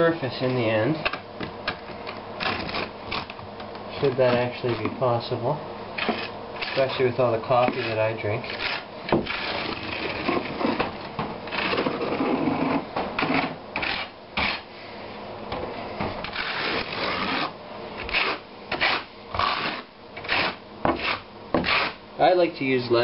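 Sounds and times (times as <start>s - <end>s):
trowel scraping mortar: 6.0s - 7.0s, 7.6s - 10.9s, 11.5s - 14.7s, 16.2s - 22.0s.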